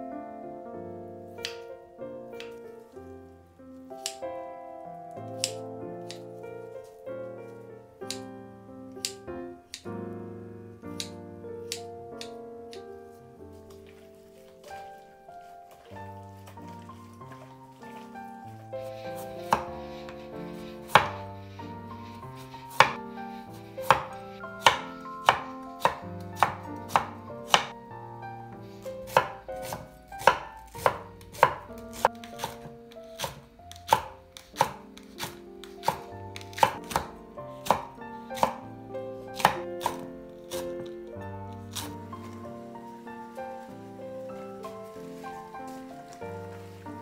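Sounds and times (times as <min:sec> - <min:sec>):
soft background music: 0:00.0 - 0:47.0
knife chopping on wooden board: 0:18.8 - 0:23.0, 0:23.8 - 0:27.8, 0:29.0 - 0:38.6, 0:39.3 - 0:41.0, 0:41.7 - 0:42.0.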